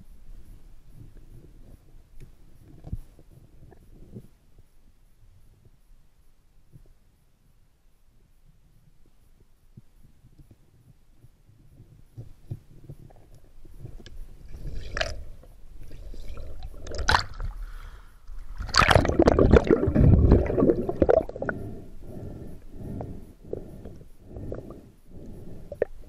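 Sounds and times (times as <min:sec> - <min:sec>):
underwater water gurgling and rushing: 0:13.8 - 0:26.0
bubbles: 0:14.5 - 0:17.6, 0:18.4 - 0:21.5.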